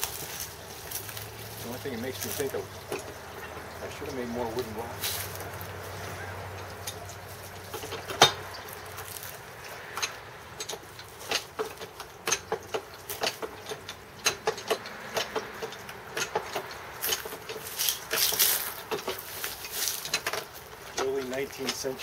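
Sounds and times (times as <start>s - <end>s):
wine press ratchet clicking: 10.0s - 22.0s.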